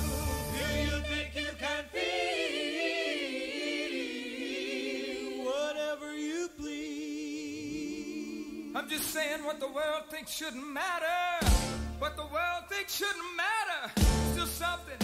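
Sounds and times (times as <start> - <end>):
voices singing held notes: 0.0 - 9.4.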